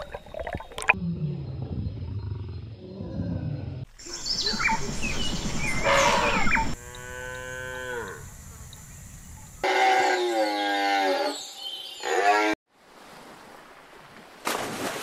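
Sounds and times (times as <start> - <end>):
cow mooing: 6.8 - 8.2.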